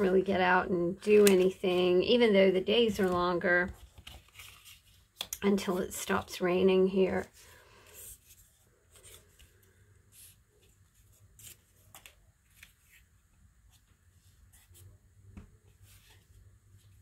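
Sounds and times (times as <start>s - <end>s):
paper strips rustling: 1.0s - 2.0s, 2.8s - 6.0s.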